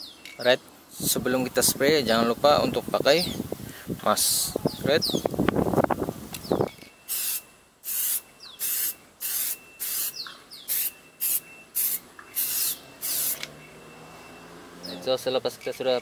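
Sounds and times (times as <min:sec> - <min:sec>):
spray can hissing bursts: 0:07.1 - 0:13.5.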